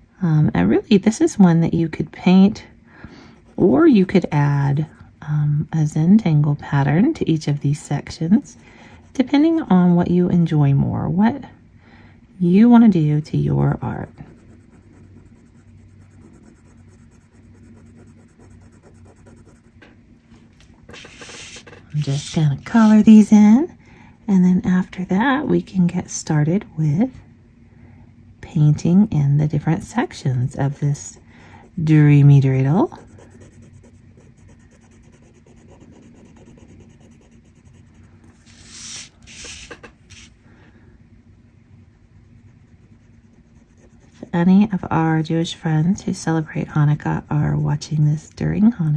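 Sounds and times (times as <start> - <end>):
low steady hum: 0.0 - 48.9
marker rubbing on paper: 13.7 - 19.9, 20.9 - 23.3, 30.1 - 40.4, 41.4 - 48.9
paper sliding on table: 20.9 - 22.4, 38.4 - 40.4.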